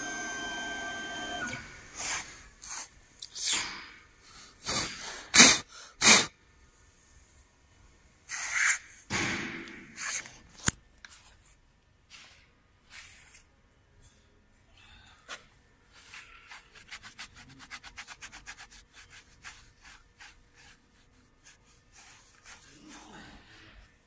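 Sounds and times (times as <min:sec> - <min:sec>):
router spindle whine: 0:00.0 - 0:01.9
air blasts: 0:04.6 - 0:06.3.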